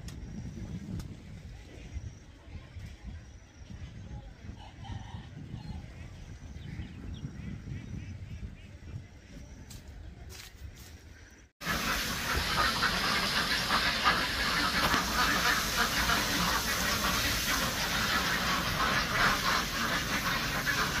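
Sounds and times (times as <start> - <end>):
flock of ducks quacking: 11.6 - 21.0.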